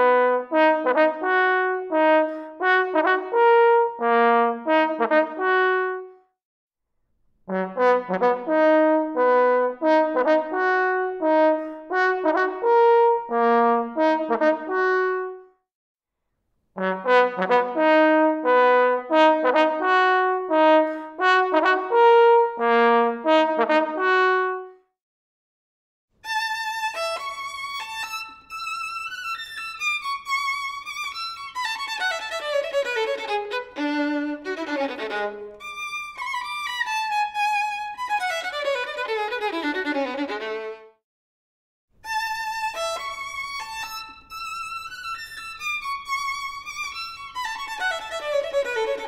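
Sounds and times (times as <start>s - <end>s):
trombone playing notes: 0.0s - 6.1s, 7.5s - 15.4s, 16.8s - 24.6s.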